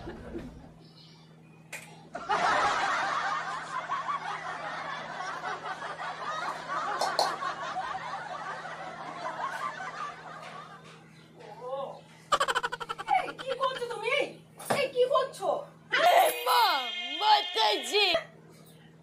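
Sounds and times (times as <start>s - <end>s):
man snickering and chuckling: 12.3s - 13.6s.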